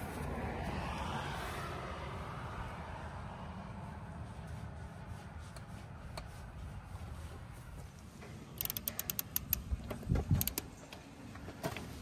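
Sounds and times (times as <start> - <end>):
ratchet clicking: 8.6 - 10.7.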